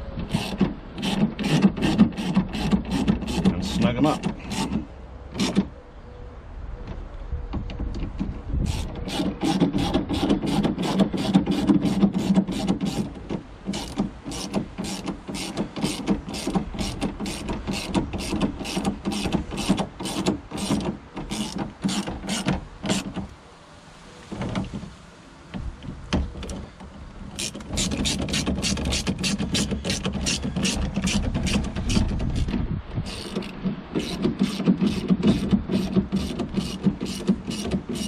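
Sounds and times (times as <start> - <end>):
screws grinding: 0.3 - 4.8, 8.7 - 23.2, 27.4 - 32.5, 33.1 - 38.0
hand ratchet clicking: 13.7 - 23.1, 27.4 - 32.5, 33.1 - 38.0.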